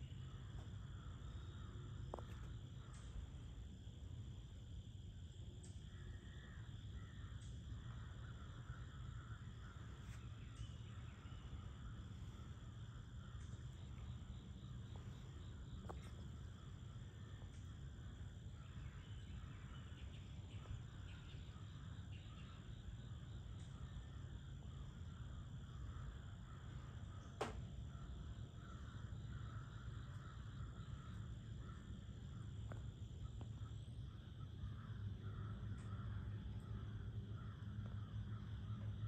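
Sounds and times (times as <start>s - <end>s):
crickets and insects trilling: 0.0s - 39.0s
low steady rumble: 0.0s - 39.0s
bird chirps: 7.0s - 24.2s.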